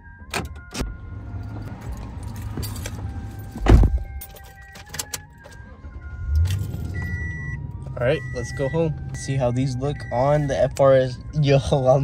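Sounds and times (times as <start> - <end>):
keys jangling: 1.6 - 5.6
car door shutting: 1.9 - 4.2.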